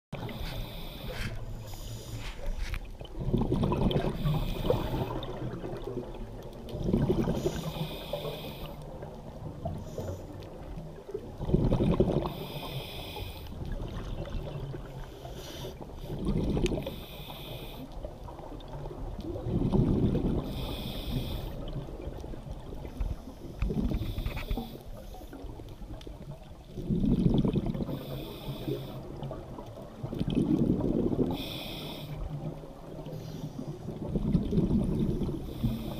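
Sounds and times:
exhaled bubbles underwater: 0.2 - 35.9
regulator inhalation hiss: 0.3 - 2.6, 7.4 - 8.8, 12.3 - 13.5, 15.2 - 15.8, 17.0 - 17.8, 20.5 - 21.7, 31.4 - 32.3.

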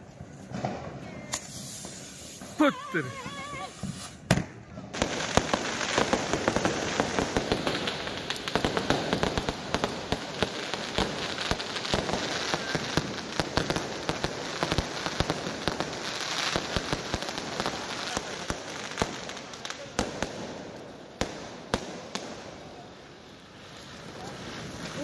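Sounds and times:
fireworks crackling: 0.0 - 25.0
firework bangs: 0.2 - 25.0
steady hiss: 1.2 - 4.3.

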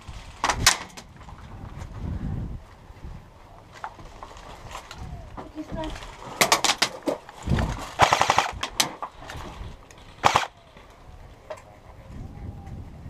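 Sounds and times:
airsoft rifle firing: 8.0 - 9.0, 10.2 - 10.6.

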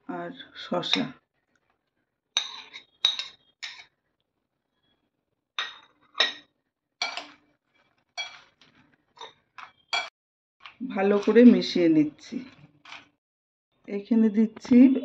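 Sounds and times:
steel spoon clinking on dishes: 2.4 - 3.9, 5.6 - 7.3, 8.2 - 8.5, 9.6 - 10.1.

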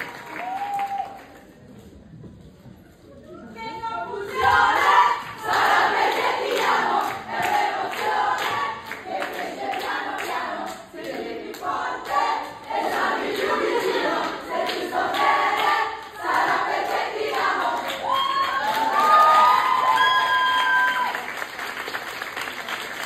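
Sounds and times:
crowd singing in chorus: 4.2 - 18.0.

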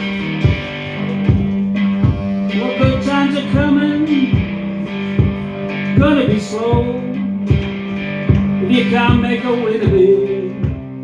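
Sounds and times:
electric cigar box guitar blues: 0.0 - 11.0
low thump on each beat: 0.4 - 2.4, 6.0 - 9.3, 9.9 - 11.0.

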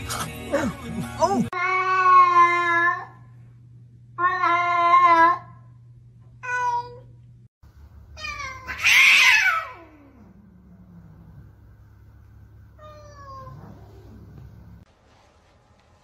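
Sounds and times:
cat meowing: 8.2 - 10.3, 12.8 - 14.2
harsh cat yowl: 8.2 - 10.3.

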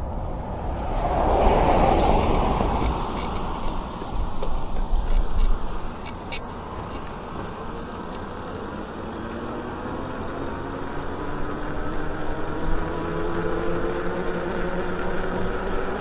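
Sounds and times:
wind and tyre noise: 0.0 - 16.0
electric motor whine: 5.6 - 16.0.

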